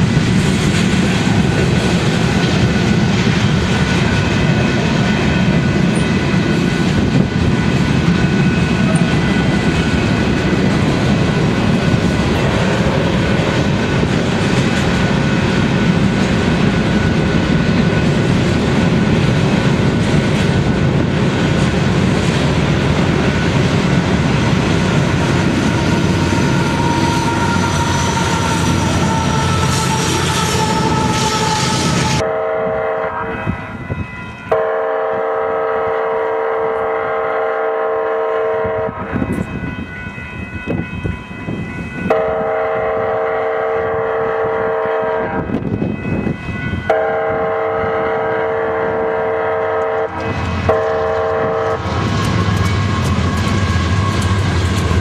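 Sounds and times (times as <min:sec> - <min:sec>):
freight cars rolling on rails: 0:00.0 - 0:32.3, 0:49.7 - 0:55.0
locomotive engine and wheels: 0:00.0 - 0:55.0
train air horn blasts: 0:25.8 - 0:33.8, 0:34.4 - 0:39.4, 0:42.0 - 0:52.0.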